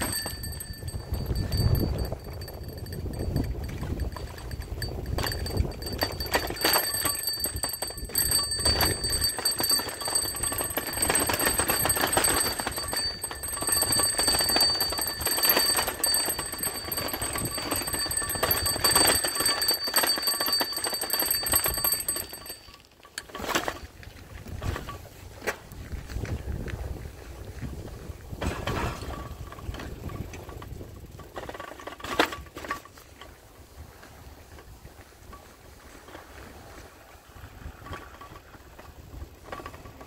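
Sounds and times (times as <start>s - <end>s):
alarm bell ringing: 0.0s - 23.2s
rapid clattering: 0.0s - 23.8s.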